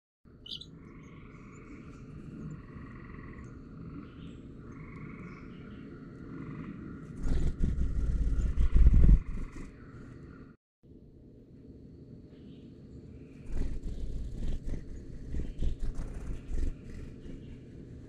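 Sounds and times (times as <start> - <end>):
frogs trilling: 0.3 - 7.1
high bird chirp: 0.4 - 6.0
fluttering low rumble: 0.5 - 10.6, 13.2 - 18.0.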